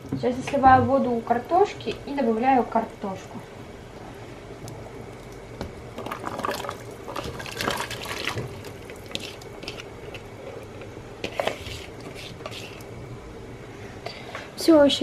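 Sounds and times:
water pouring and splashing: 5.9s - 9.8s.

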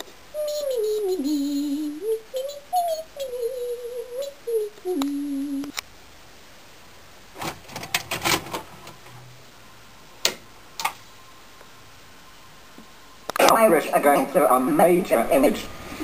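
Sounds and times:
person humming falling note: 0.4s - 5.7s
tape player clicks and clunks: 7.4s - 9.2s.

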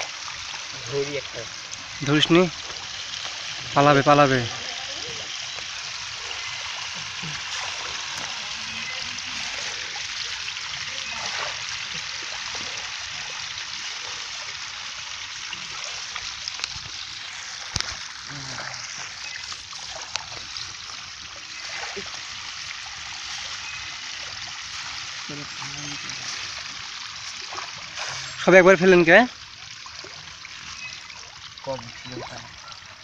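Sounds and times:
fish splashing at surface: 4.5s - 28.5s.

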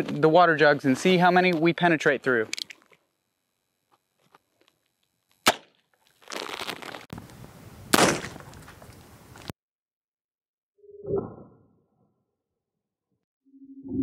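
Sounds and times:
revolver gunshot: 7.9s - 8.4s.

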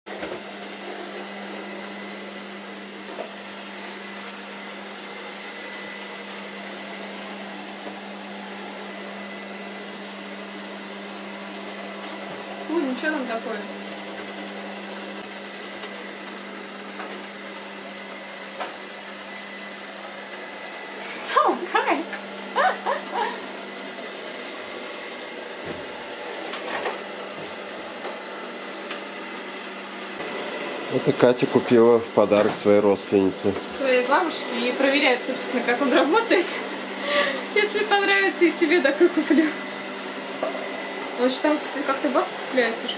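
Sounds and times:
robot vacuum cleaner motor whir: 0.1s - 42.9s.

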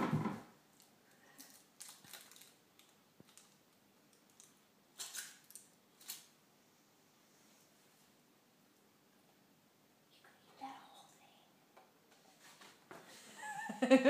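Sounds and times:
foil wrapper crinkling: 1.4s - 3.6s, 4.2s - 6.3s.

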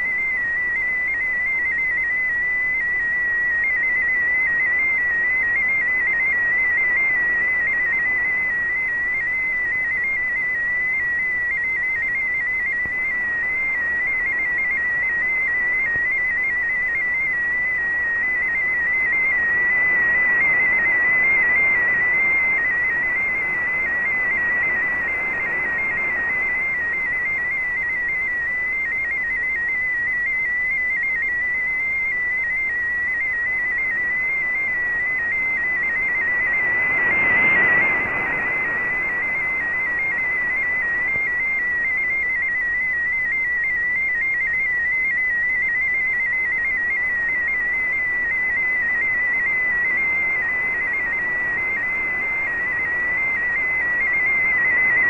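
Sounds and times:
shortwave radio hiss: 0.0s - 55.0s
warbling digital data tone: 30.9s - 55.0s.

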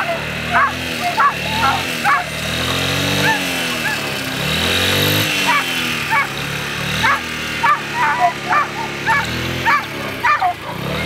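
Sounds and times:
dog yipping: 0.0s - 2.3s, 3.2s - 4.1s, 5.5s - 6.3s, 7.0s - 10.9s
motor humming: 0.0s - 11.0s.

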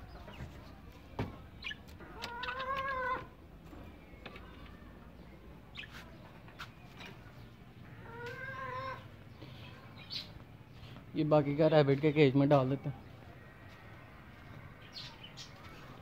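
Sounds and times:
chickens calling: 0.0s - 10.7s.

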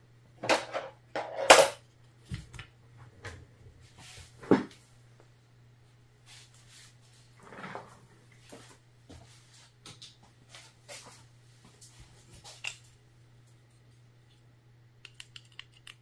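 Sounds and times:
steady low hum: 0.0s - 16.0s
screwdriver and parts clicking: 15.0s - 16.0s.

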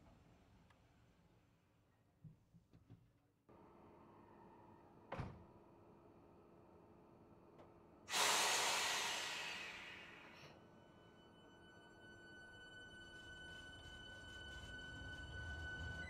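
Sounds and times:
thump: 5.1s - 5.4s
compressed air hiss: 8.1s - 10.4s.

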